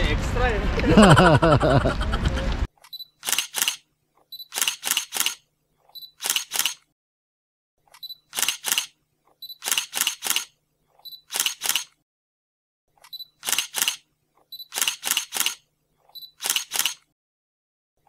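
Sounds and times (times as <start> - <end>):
camera shutter clicks: 2.8 - 3.8, 4.4 - 5.4, 6.0 - 6.9, 8.0 - 9.0, 9.6 - 10.6, 11.2 - 12.0, 13.1 - 14.0, 14.6 - 15.6, 16.2 - 17.1.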